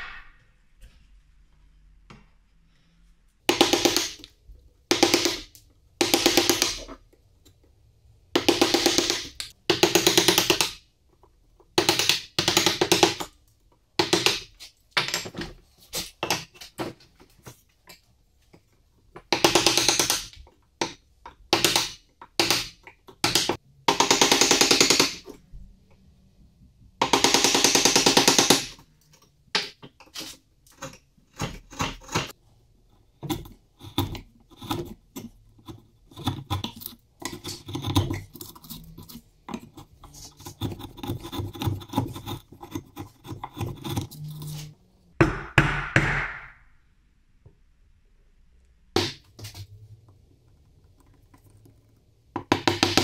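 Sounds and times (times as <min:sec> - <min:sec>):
chisel cutting wood: 0:30.2 - 0:32.4, 0:33.0 - 0:44.7.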